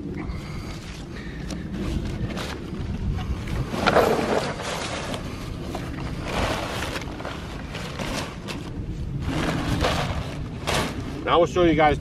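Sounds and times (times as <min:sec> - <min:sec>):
wind on microphone: 0:00.0 - 0:12.0
paper and cardboard rustling: 0:03.8 - 0:11.4.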